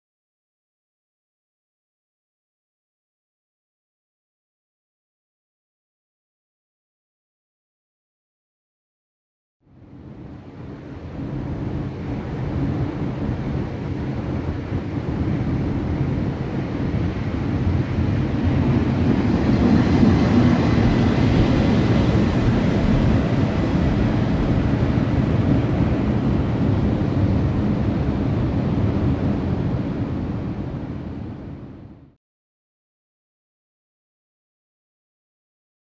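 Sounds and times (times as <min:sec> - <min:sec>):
train wheels rumbling on rails: 0:18.1 - 0:26.1.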